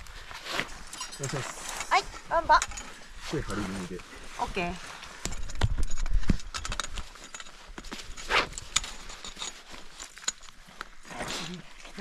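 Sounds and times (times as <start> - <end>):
metal climbing gear clicking on rock: 5.2 - 11.0.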